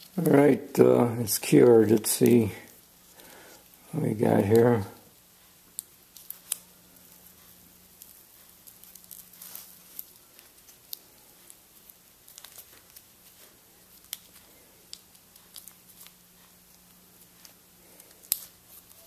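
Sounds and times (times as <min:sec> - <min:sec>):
tape peeling and crumpling: 0:00.0 - 0:04.8, 0:05.7 - 0:19.0.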